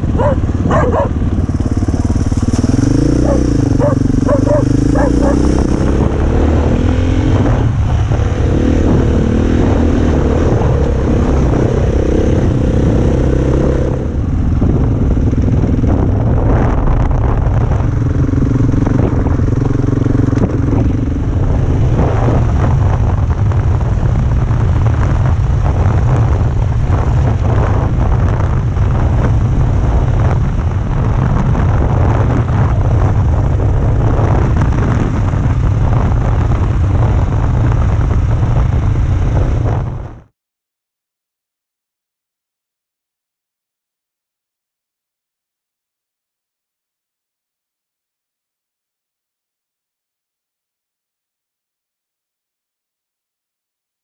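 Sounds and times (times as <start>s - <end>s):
dirt bike engine running: 0.0s - 7.4s
deep steady rumble: 0.0s - 40.3s.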